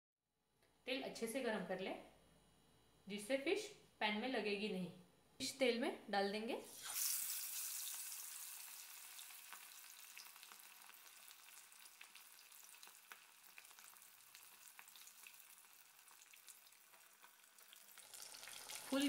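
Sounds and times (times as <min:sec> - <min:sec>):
fish sizzling in hot oil: 0:06.8 - 0:19.0.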